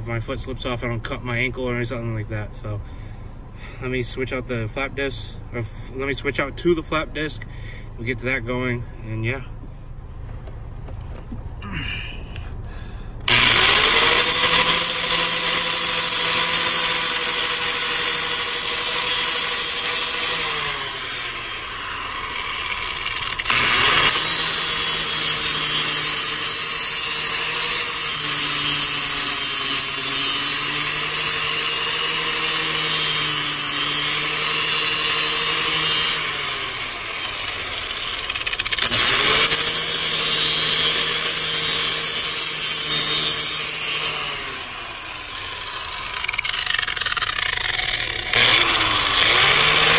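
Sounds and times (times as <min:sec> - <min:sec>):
angle grinder grinding steel: 0:13.3 - 0:49.9.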